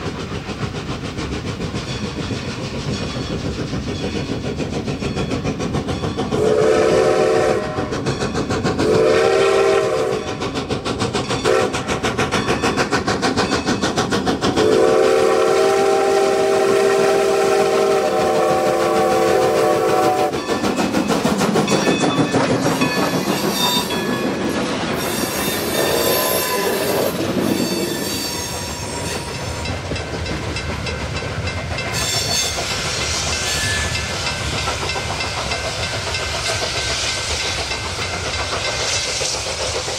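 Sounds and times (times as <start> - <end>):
steam locomotive exhaust beats: 0.0 - 39.9
steam locomotive whistle: 6.3 - 8.1, 8.8 - 10.5, 11.4 - 11.8, 14.5 - 20.6, 25.0 - 29.6, 31.9 - 34.3
freight wheels clattering over rail joints: 20.4 - 39.9.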